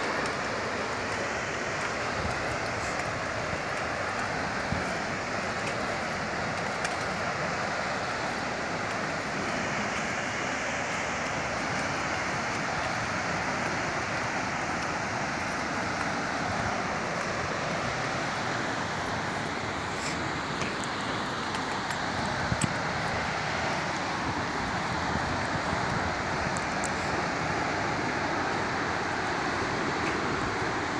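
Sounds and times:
waterfall roaring: 0:00.0 - 0:30.9.

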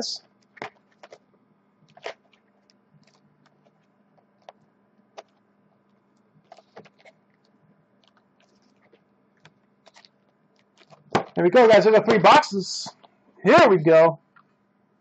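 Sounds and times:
plastic wrap crinkling: 0:09.8 - 0:11.2.

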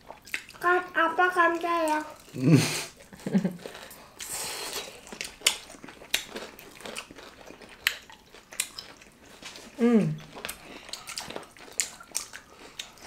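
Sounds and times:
crunchy chewing: 0:03.0 - 0:13.0.

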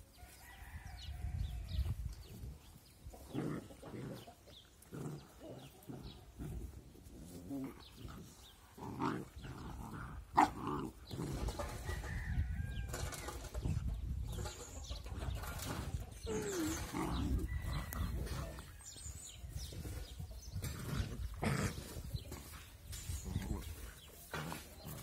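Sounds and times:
scuffling on grass: 0:00.0 - 0:09.9, 0:16.8 - 0:25.0
puppies growling: 0:03.1 - 0:11.8, 0:15.7 - 0:25.0.

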